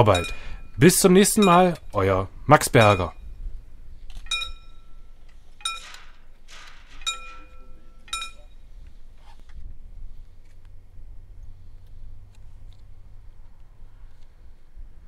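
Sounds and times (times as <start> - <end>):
metallic clinks of signal arm: 0.0 - 2.0, 2.6 - 3.4, 4.0 - 8.9.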